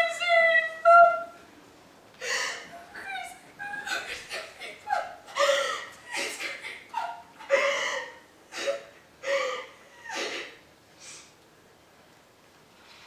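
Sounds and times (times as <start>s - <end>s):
woman gasping cries: 2.2s - 2.8s, 3.6s - 10.6s.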